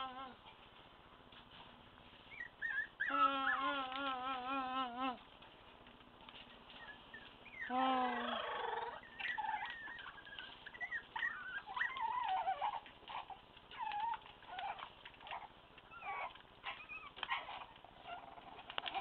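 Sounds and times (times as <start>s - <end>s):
puppies squealing and yelping: 2.2s - 4.0s, 6.4s - 19.0s.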